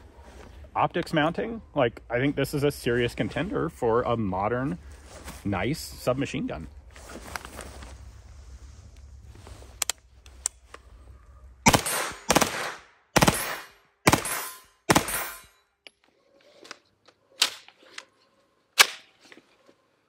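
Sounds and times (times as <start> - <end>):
single gunshots: 11.6 - 15.4.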